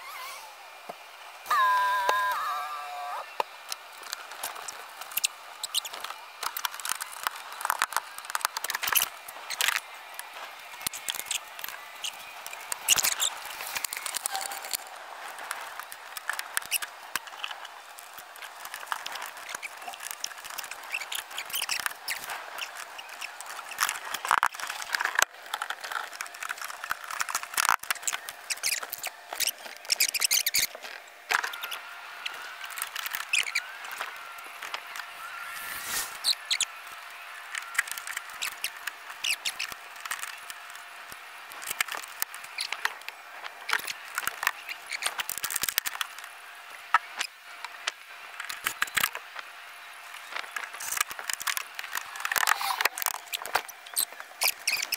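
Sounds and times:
scratching and rubbing: 0:04.0 - 0:36.7
short squeaks: 0:31.4 - 0:34.2, 0:52.0 - 0:54.9.

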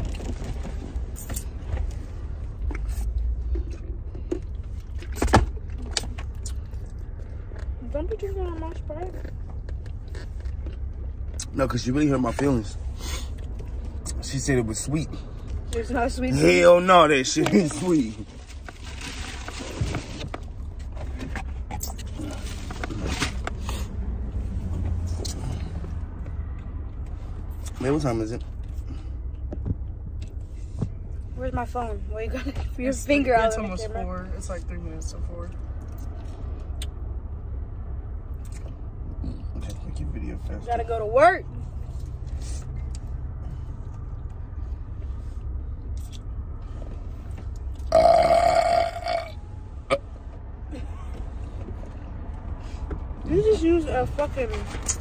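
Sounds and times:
low rumble inside car: 0:00.0 - 0:55.0
loud burp: 0:47.9 - 0:50.0.

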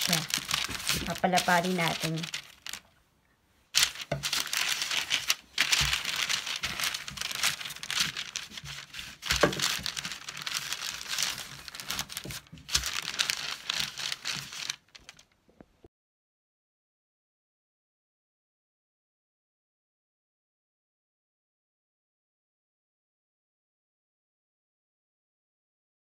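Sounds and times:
parchment paper crinkling: 0:00.0 - 0:03.0, 0:03.7 - 0:15.4
rolling pin rolling dough: 0:03.8 - 0:14.6.

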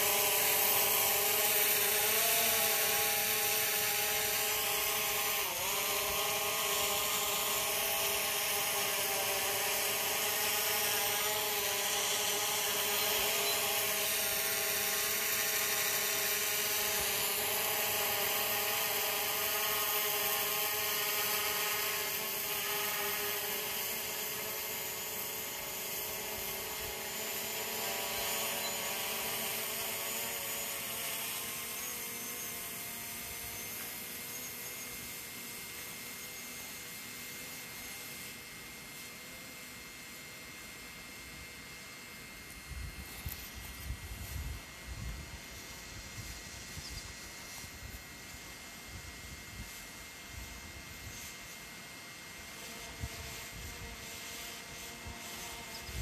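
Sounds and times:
drone propellers whining: 0:00.0 - 0:39.0.

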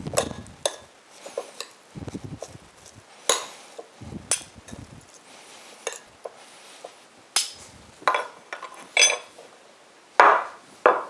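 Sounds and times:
metal spoons clinking on ceramic bowl: 0:08.1 - 0:09.3.

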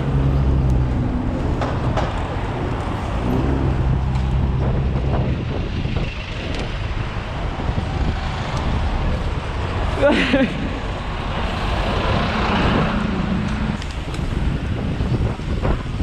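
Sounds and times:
low engine hum: 0:00.0 - 0:06.1
road traffic: 0:00.0 - 0:16.0
wind on microphone: 0:00.0 - 0:16.0.

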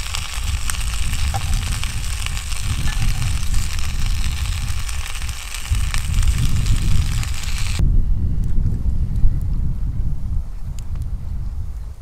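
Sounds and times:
faint frying crackles: 0:00.0 - 0:07.8
fish frying in oil: 0:00.0 - 0:07.8
wind buffeting microphone: 0:00.0 - 0:12.0.

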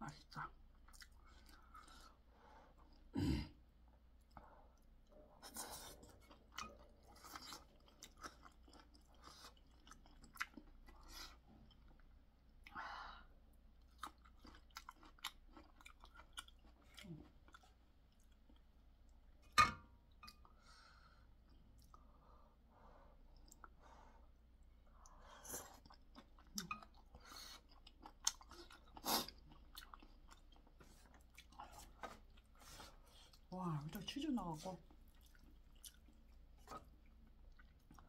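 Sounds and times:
close chewing: 0:00.8 - 0:02.2, 0:05.8 - 0:12.7, 0:13.8 - 0:18.7, 0:25.5 - 0:34.0, 0:34.8 - 0:38.0.

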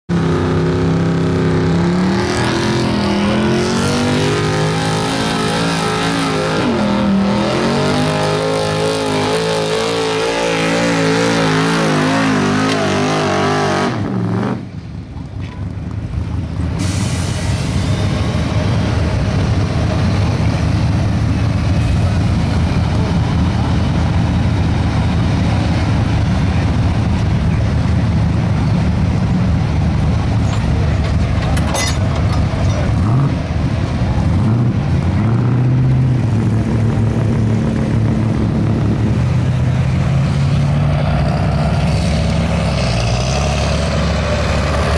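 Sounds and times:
pickup engine revving hard: 0:00.2 - 0:14.6.

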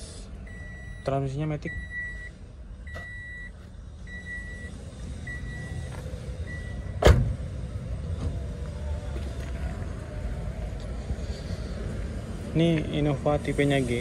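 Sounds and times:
car door warning chime beeping: 0:00.5 - 0:05.8
car door slamming: 0:06.9 - 0:07.4.

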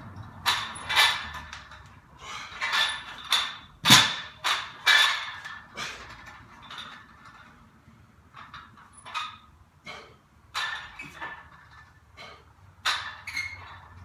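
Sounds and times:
person breathing hard: 0:02.2 - 0:02.6.

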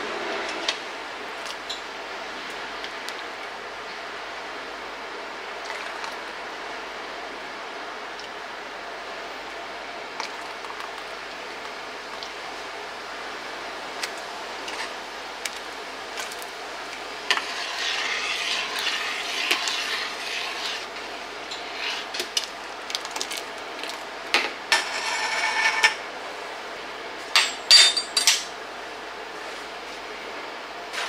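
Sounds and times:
utensils clinking on glass jars: 0:27.4 - 0:28.5.

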